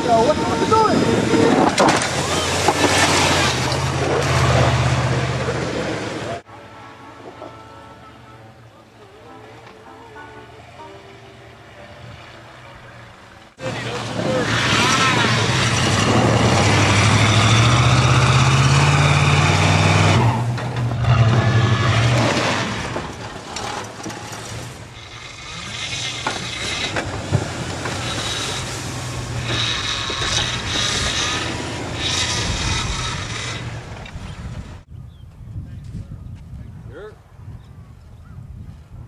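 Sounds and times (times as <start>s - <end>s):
pickup truck engine: 0.0s - 6.4s, 12.2s - 34.8s.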